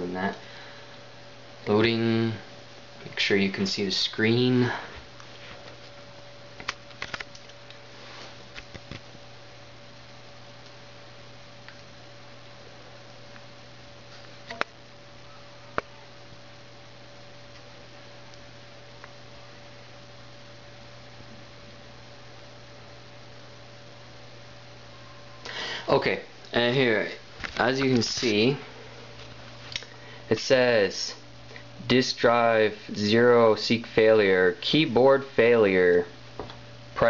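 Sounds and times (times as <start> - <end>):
computer electrical hum: 0.0 - 37.0
faint high steady tone: 14.5 - 16.7, 24.6 - 27.2.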